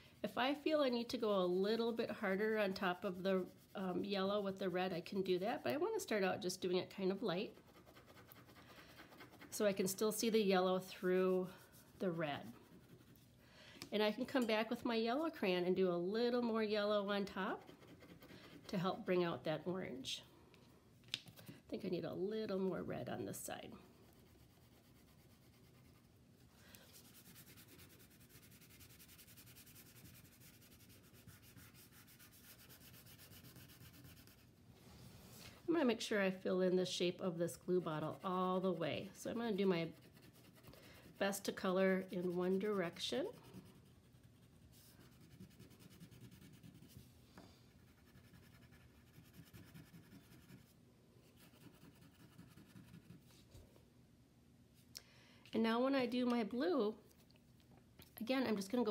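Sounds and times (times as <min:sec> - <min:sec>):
wax crayon rubbing on paper: 0:01.1 - 0:04.7, 0:07.4 - 0:10.1, 0:23.9 - 0:26.1, 0:26.9 - 0:34.5, 0:37.6 - 0:47.0, 0:47.8 - 0:50.7, 0:51.4 - 0:53.3.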